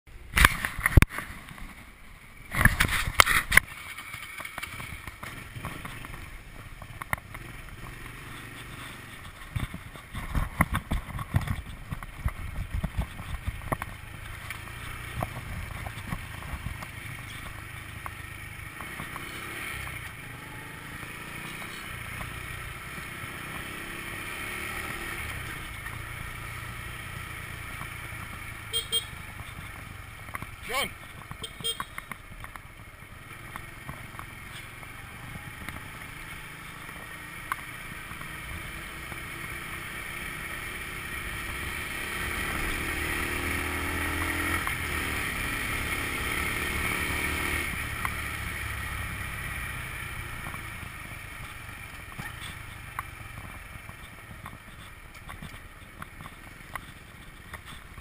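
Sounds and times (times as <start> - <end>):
wind and road noise: 0.1 - 58.0
scooter engine running: 2.6 - 58.0.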